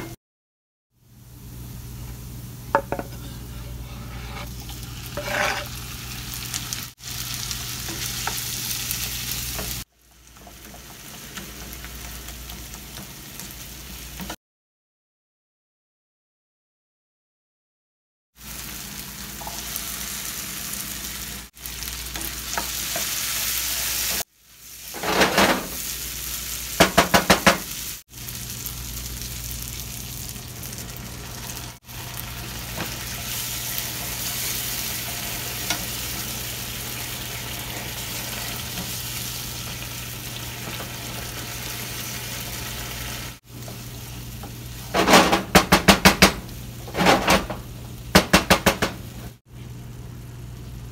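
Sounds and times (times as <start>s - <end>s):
food sizzling in oil: 1.3s - 14.4s, 18.4s - 48.2s
spoon scraping a pan: 2.8s - 5.8s.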